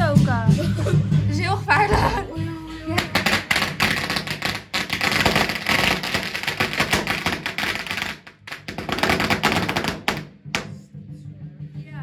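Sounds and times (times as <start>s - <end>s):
firecrackers cracking: 2.8s - 10.8s.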